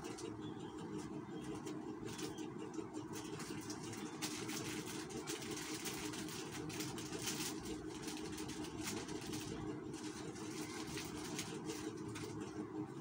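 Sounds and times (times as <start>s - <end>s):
low mechanical hum: 0.0s - 13.0s
plastic sachets crinkling: 3.1s - 12.6s.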